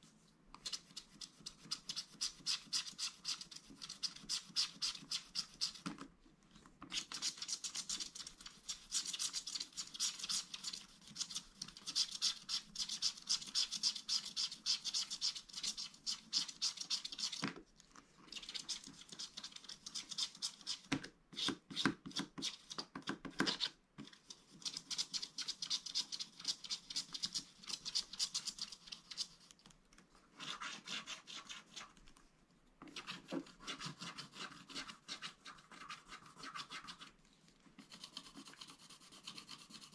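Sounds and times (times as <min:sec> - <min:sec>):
stylus scratching card: 0:00.6 - 0:05.8, 0:06.9 - 0:17.4, 0:23.4 - 0:29.5, 0:30.4 - 0:32.0, 0:32.9 - 0:37.1, 0:37.8 - 0:39.9.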